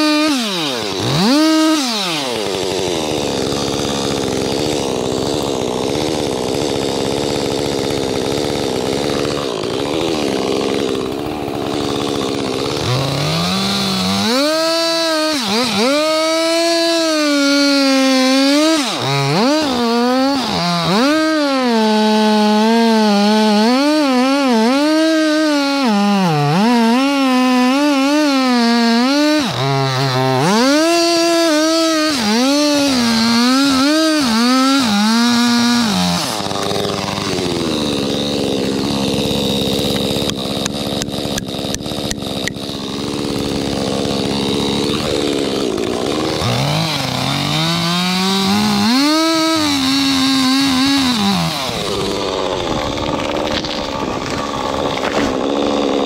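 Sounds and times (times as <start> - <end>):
chainsaw cutting wood: 0.0 - 56.0.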